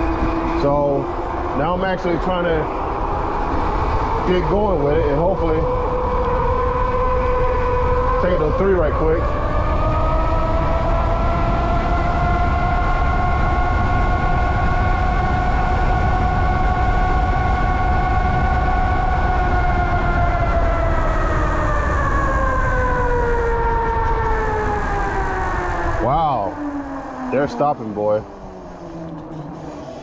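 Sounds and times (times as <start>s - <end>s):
wind on microphone: 0.0s - 30.0s
electric motor whining: 27.3s - 30.0s.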